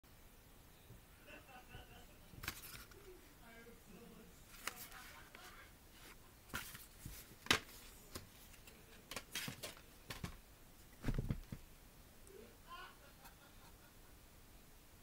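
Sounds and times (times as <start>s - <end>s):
plastic case clicks and rustles: 8.6s - 10.4s.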